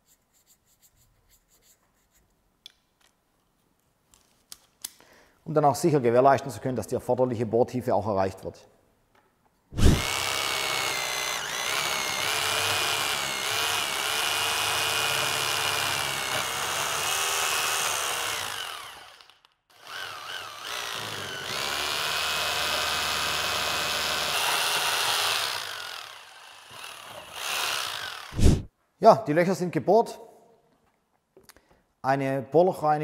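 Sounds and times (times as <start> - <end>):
rotary hammer drilling into brick: 9.8 - 28.7.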